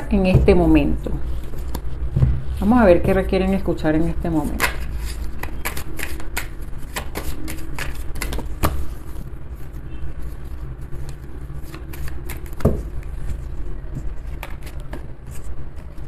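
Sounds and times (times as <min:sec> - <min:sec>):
cards being shuffled: 0:04.4 - 0:16.0.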